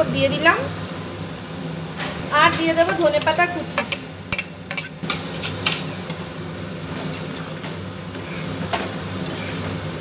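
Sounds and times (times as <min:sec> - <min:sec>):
spatula scraping metal pan: 0:07.1 - 0:09.8
spatula stirring thick dal: 0:07.2 - 0:09.8.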